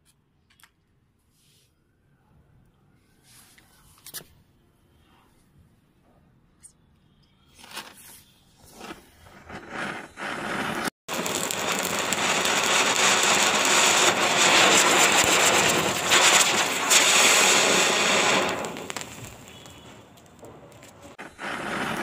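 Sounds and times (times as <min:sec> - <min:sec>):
firecrackers hissing: 0:08.0 - 0:22.0.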